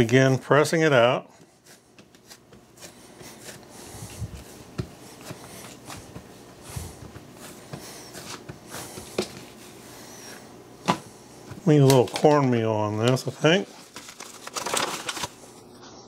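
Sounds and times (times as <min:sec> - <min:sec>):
hands patting dough: 0:01.3 - 0:09.8.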